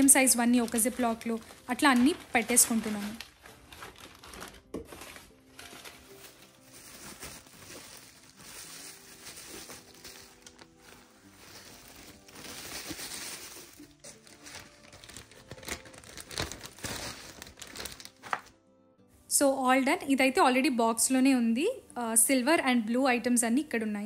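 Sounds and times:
paper and plastic crinkling: 0.0s - 18.5s.

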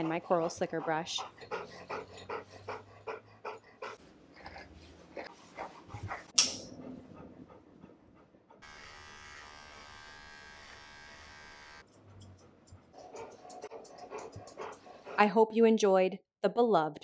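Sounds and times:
electric trimmer buzzing: 8.6s - 11.8s.

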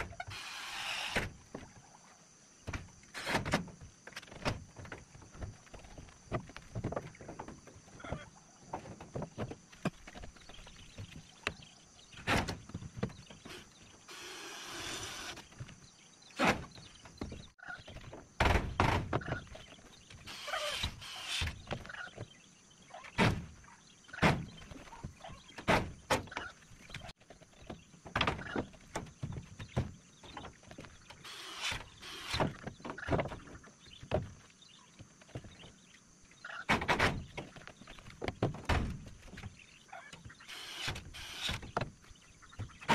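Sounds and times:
wooden knocks and thuds: 2.6s - 13.6s, 16.4s - 19.9s, 23.2s - 23.6s, 24.2s - 31.2s, 32.3s - 34.4s, 36.7s - 42.9s.

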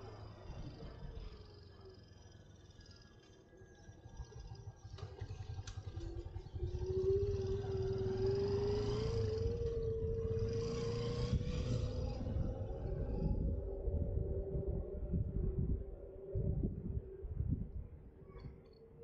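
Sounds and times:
vehicle engine rumbling: 4.4s - 18.6s.

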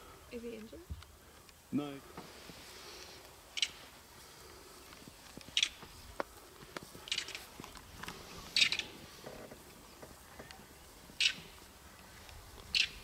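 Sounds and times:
footsteps rustling through dry grass: 0.0s - 13.0s.

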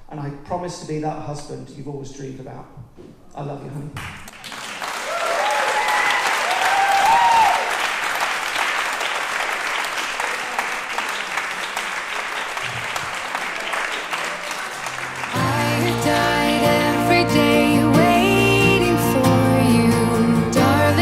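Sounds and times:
guests applauding: 4.0s - 17.0s
music: 15.2s - 21.0s.

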